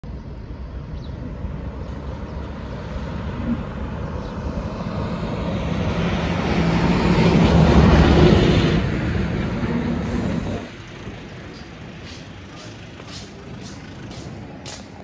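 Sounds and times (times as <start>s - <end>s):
truck engine and tyres: 0.0s - 15.0s.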